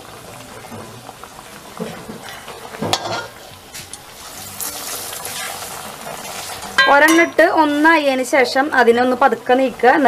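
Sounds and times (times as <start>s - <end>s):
oil sizzling in a wok: 0.0s - 10.0s
steel spatula clinking and scraping pan: 2.9s - 3.3s, 6.7s - 7.8s.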